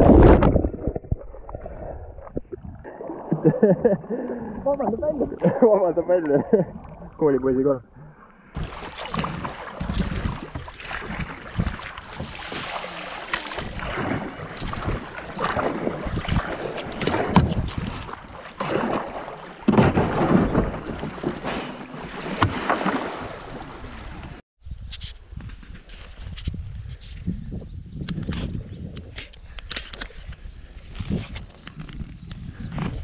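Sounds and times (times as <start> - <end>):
wind on microphone: 0.0 - 2.9, 13.5 - 18.3, 23.8 - 33.0
kayak paddle splashing: 0.0 - 24.4
quiet outdoor background: 0.1 - 9.3.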